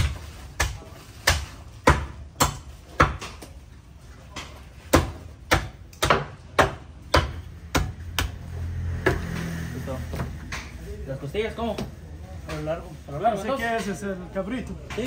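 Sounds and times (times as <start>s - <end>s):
knife chopping meat: 0.0s - 3.5s, 4.4s - 8.4s.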